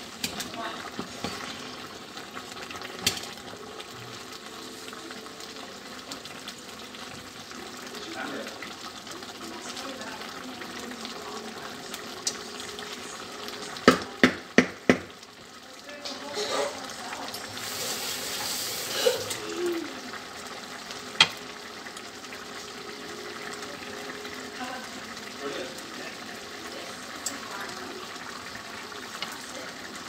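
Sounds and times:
pot boiling and bubbling: 0.0 - 30.0
wooden spoon knocking on pot: 13.8 - 15.2.

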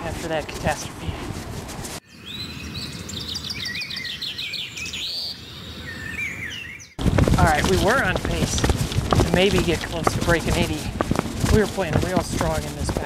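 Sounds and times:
songbirds chirping and singing: 2.0 - 7.0
low outdoor rumble: 7.0 - 13.0.

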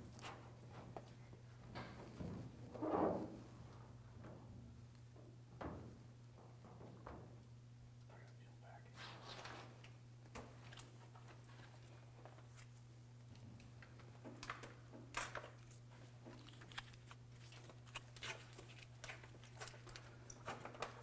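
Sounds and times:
steady low hum: 0.0 - 21.0
stiff paper rustling and crinkling: 15.2 - 21.0.

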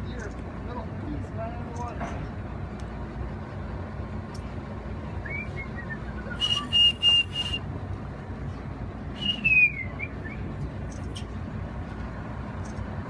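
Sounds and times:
steady low rumble: 0.0 - 13.0
person whistling loudly: 5.2 - 7.6, 9.2 - 10.2.

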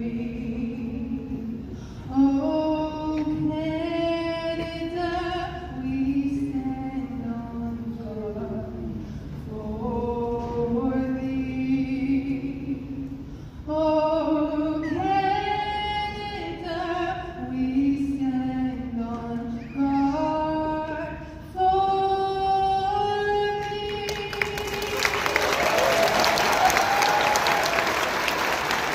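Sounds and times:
audience applause: 24.4 - 28.9.

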